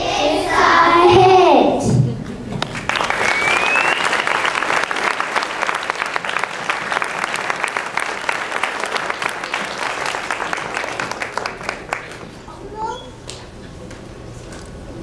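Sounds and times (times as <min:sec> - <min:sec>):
audience applauding: 0:02.6 - 0:12.3.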